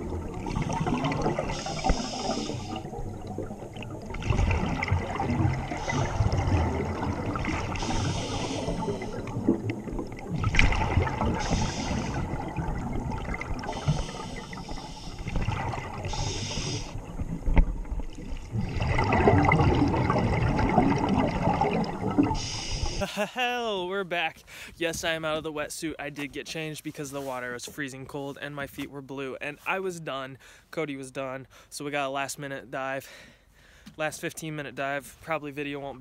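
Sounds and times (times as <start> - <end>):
bubbly rumble of exhaled air: 0.0 - 23.1
regulator hiss on inhale: 1.5 - 3.0, 5.7 - 6.4, 7.7 - 9.4, 11.3 - 12.4, 13.6 - 15.4, 16.0 - 17.2, 22.3 - 23.1.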